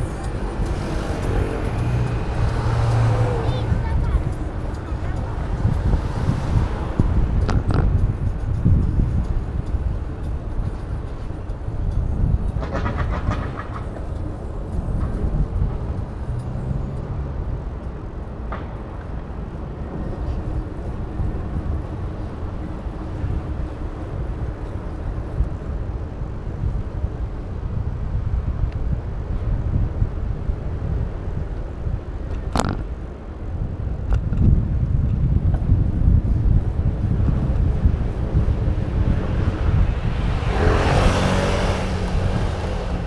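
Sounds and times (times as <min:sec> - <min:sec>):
road traffic: 0:00.0 - 0:43.0
wind on microphone: 0:00.0 - 0:43.0.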